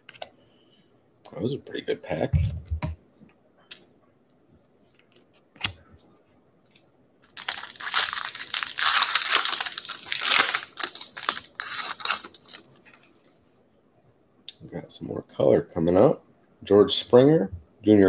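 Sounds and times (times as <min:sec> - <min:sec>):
foil wrapper tearing and crinkling: 0:07.3 - 0:12.7.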